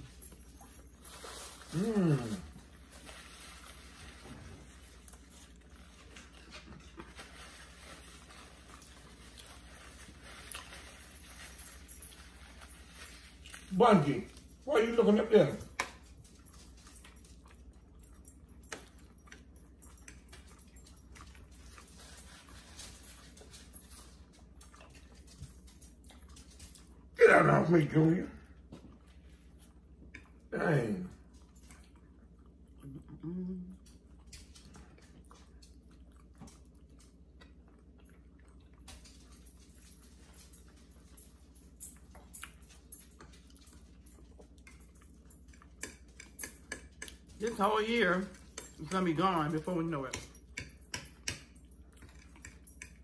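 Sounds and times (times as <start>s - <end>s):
steady low hum: 0.0s - 47.5s
wet chewing mouth clicks: 31.8s - 34.7s.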